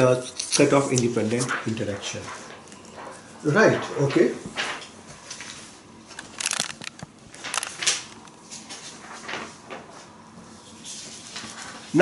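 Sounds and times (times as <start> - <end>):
paper rustling: 5.3 - 10.0.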